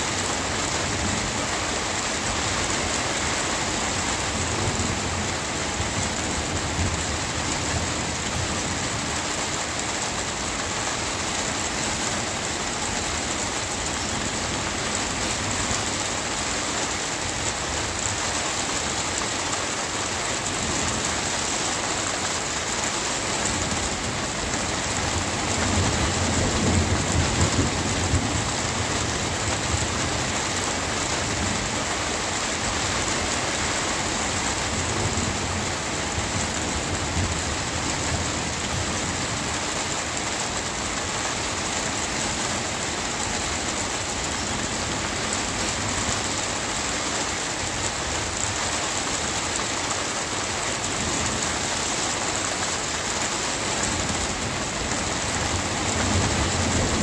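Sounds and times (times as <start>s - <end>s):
steady rain falling: 0.0s - 57.0s
low rumble of thunder: 23.5s - 30.6s, 54.0s - 57.0s.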